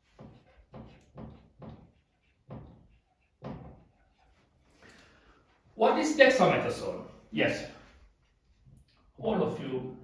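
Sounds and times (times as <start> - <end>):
marker pen writing on whiteboard: 0.0 - 6.2.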